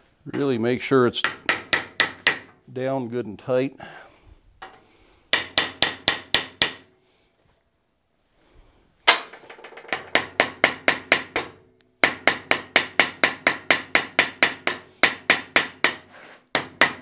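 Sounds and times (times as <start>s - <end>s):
hammer striking metal: 1.2s - 2.6s, 5.3s - 6.9s, 9.9s - 17.0s.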